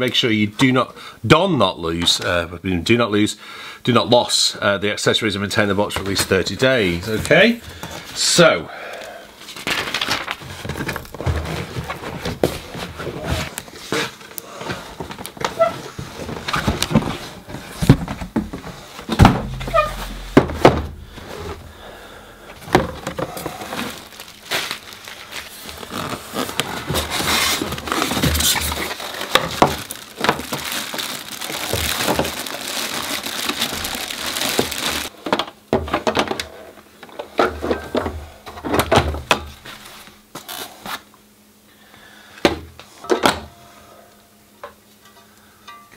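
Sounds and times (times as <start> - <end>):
packaging rustling: 9.4 - 13.8, 14.9 - 35.2
cardboard box knocks and thumps: 16.1 - 21.7.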